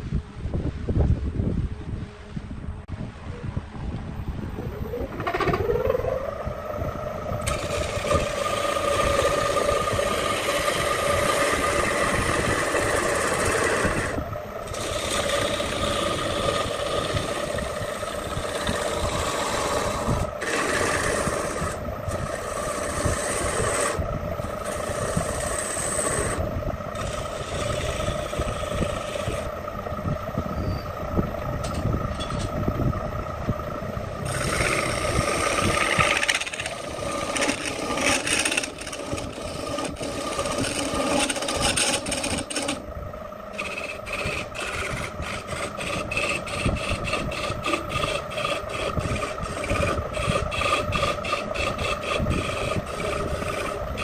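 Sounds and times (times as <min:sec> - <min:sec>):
wood lathe humming: 0:04.8 - 0:54.0
chisel scraping wood: 0:07.4 - 0:26.4, 0:27.0 - 0:29.5, 0:34.2 - 0:42.8, 0:43.5 - 0:54.0.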